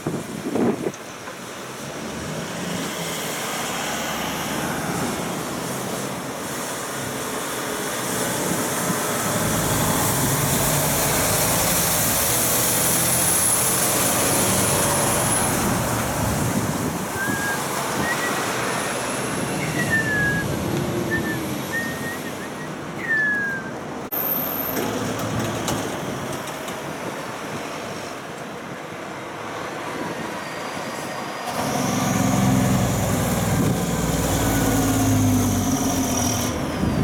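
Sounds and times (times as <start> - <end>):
diesel truck engine: 0.0 - 37.0
tyre and road noise: 0.0 - 37.0
thin high whistle: 17.1 - 24.4.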